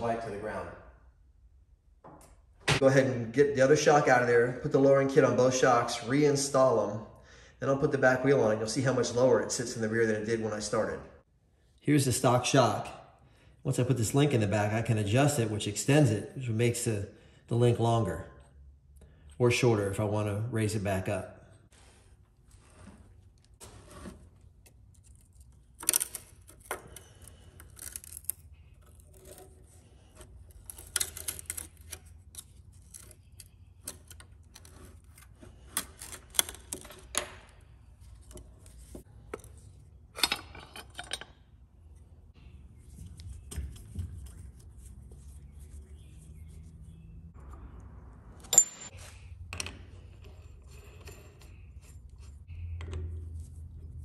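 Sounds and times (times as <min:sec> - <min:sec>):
metal tools clinking and rattling: 0:48.4 - 0:52.4.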